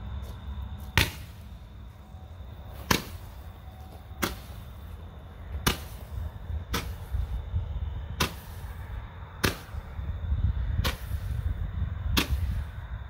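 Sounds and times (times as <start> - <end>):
firework pops: 10.8 - 11.3, 12.1 - 12.7.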